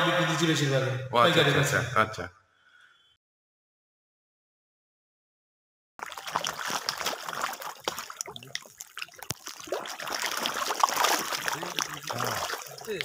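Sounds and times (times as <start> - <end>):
fish splashing at water surface: 6.0 - 13.0.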